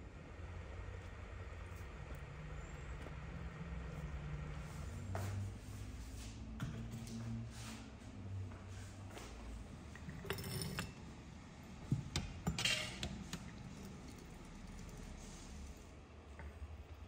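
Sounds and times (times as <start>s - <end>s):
porcelain and metal clinks: 10.0s - 11.0s
hot water running into teapot: 13.0s - 15.8s.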